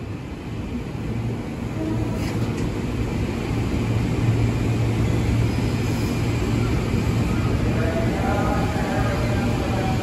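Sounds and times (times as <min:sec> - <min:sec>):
train wheels rumbling: 0:00.0 - 0:10.0.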